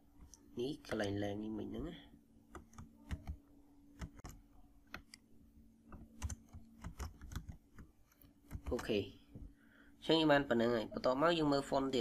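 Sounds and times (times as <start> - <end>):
faint low hum: 0.0 - 12.0
computer keyboard typing: 2.5 - 5.2, 5.9 - 9.0.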